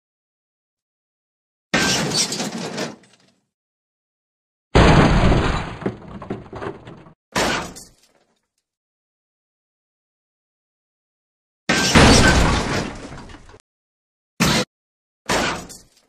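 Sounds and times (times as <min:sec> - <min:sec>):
car crash with breaking glass: 0:04.8 - 0:07.9, 0:11.7 - 0:13.6.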